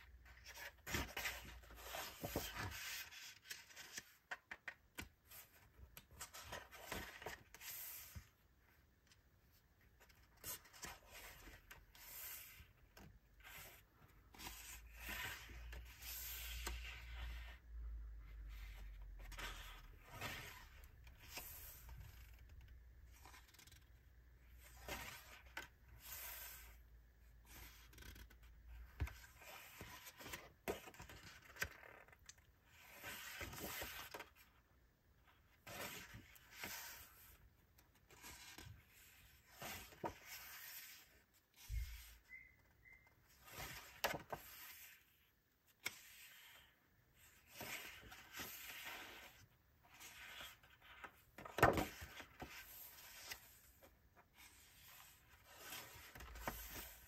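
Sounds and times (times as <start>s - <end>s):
paper pages rustling: 0.2s - 8.2s, 38.0s - 42.1s, 45.8s - 57.0s.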